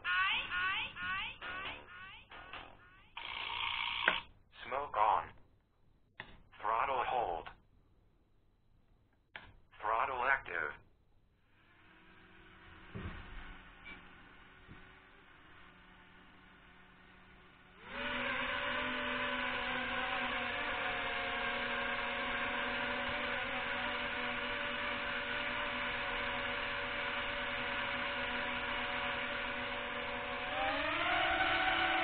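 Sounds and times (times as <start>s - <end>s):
quadcopter motors whining: 11.5s - 32.0s.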